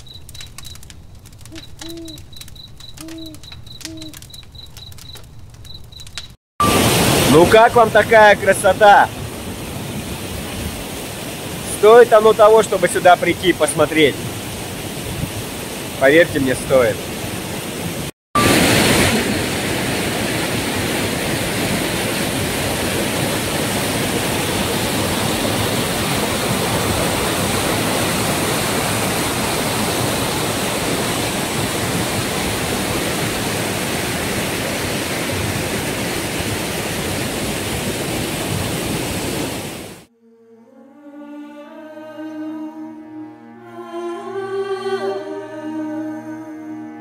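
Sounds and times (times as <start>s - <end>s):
stream rushing over rocks: 6.6s - 40.1s.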